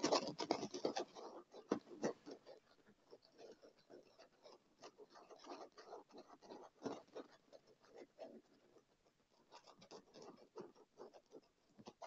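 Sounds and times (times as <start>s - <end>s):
fingernails scratching leather: 0.0s - 8.8s.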